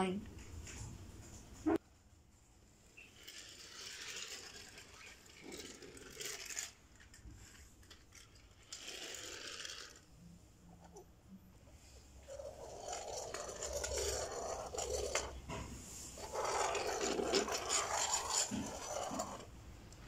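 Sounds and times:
toy train wheels rattling on floor: 3.0s - 10.1s, 11.8s - 15.5s, 16.2s - 19.5s.

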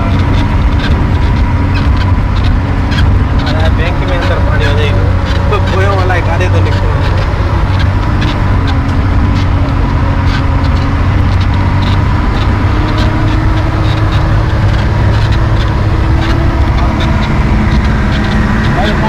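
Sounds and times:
light rattles: 0.0s - 19.0s
vehicle engine running: 0.0s - 19.0s.

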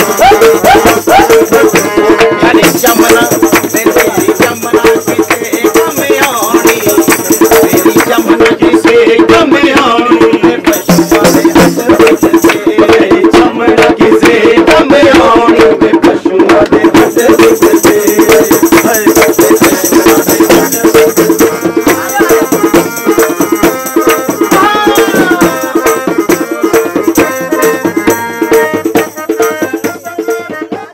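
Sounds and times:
rattle shaking: 0.0s - 2.0s, 2.6s - 8.4s, 10.7s - 12.7s, 16.9s - 30.4s.

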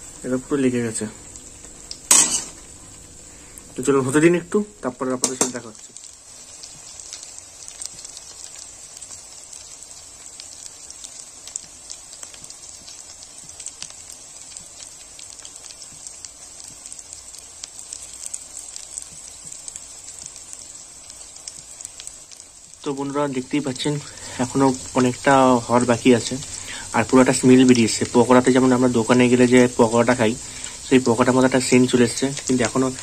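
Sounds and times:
food sizzling in hot oil: 0.0s - 33.0s
crackling pops of oil: 5.2s - 6.0s.

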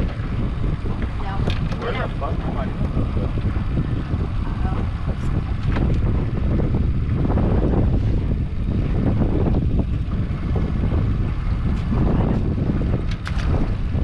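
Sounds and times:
boat motor running: 0.0s - 14.0s
wind buffeting microphone: 0.0s - 14.0s.

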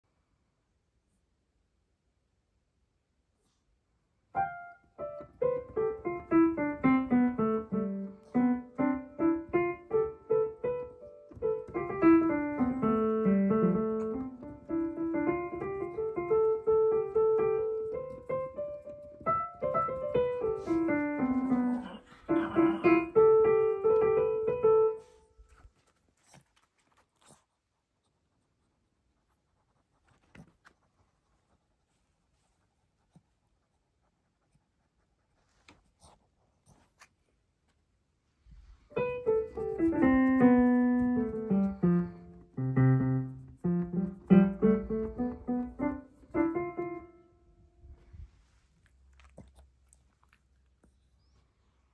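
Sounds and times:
piano playing broken chords: 39.0s - 47.4s.

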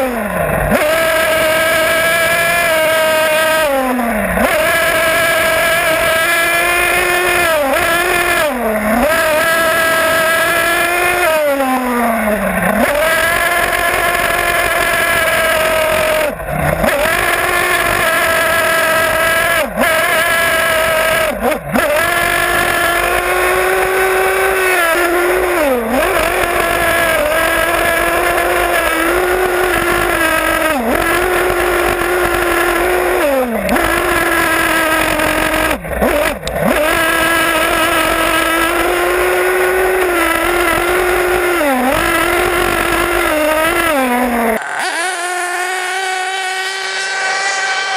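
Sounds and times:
nitro engine revving: 0.0s - 47.9s.

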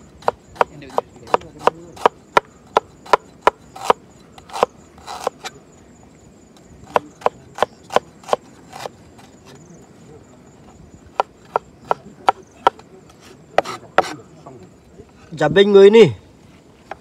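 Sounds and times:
cleaver chopping on plastic board: 0.2s - 5.5s, 6.8s - 8.9s, 11.1s - 12.9s.

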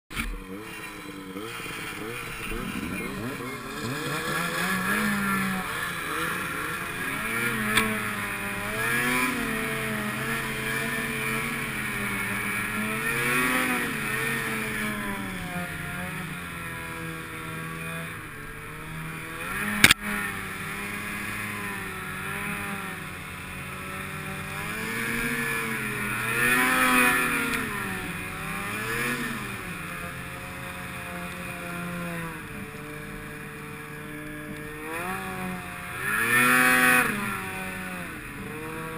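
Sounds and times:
snowmobile engine revving: 0.1s - 38.9s
sharp click: 19.8s - 20.0s.

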